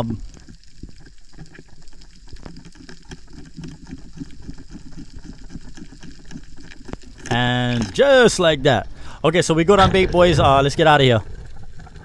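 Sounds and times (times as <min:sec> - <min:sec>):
crackle of small clicks underwater: 0:00.0 - 0:08.4, 0:11.0 - 0:12.0
low water rumble: 0:00.0 - 0:12.0.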